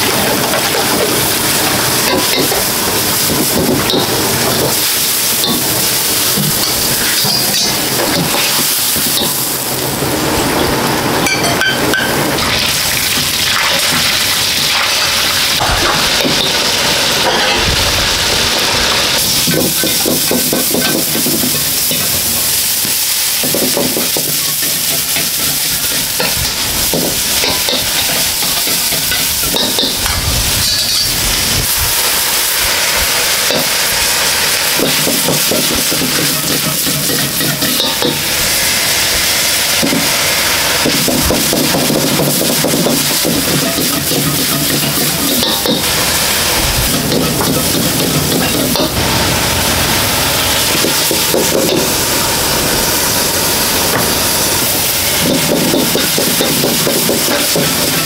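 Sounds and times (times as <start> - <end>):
food sizzling in wok: 0.0 - 58.0
metal ladle scraping pan: 42.3 - 58.0.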